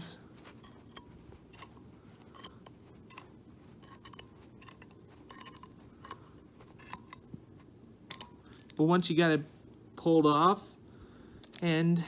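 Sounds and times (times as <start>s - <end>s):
small metallic clicks and ticks: 0.6s - 8.8s.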